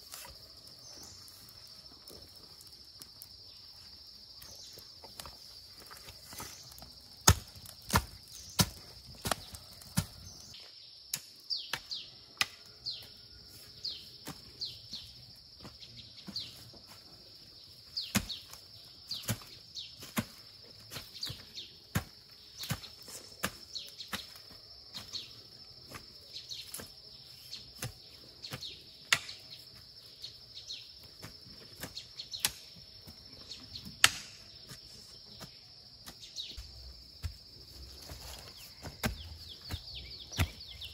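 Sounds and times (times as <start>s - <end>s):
high insect drone: 0.0s - 40.9s
hoe chopping dry soil: 5.2s - 10.5s, 17.9s - 29.7s, 31.1s - 33.2s, 33.8s - 40.9s.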